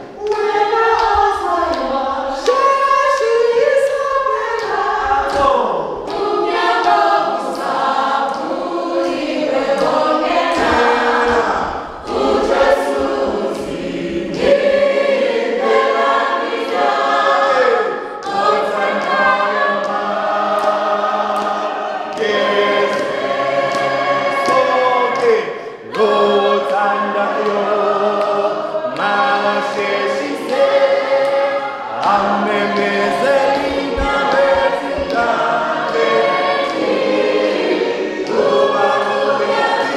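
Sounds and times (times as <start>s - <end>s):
choir singing a hymn: 0.0s - 39.9s.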